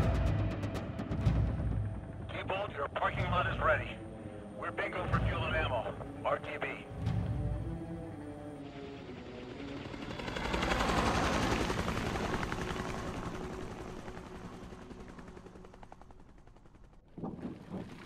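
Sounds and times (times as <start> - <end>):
helicopter rotor blades chopping: 4.8 - 18.0.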